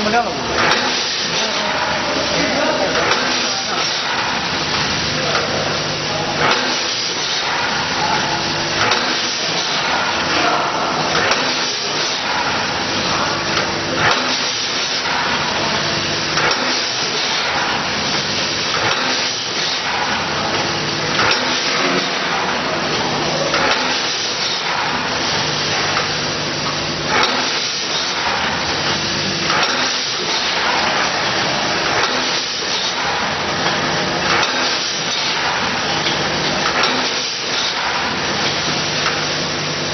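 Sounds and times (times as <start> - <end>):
packaging machine hissing: 0.0 - 39.9.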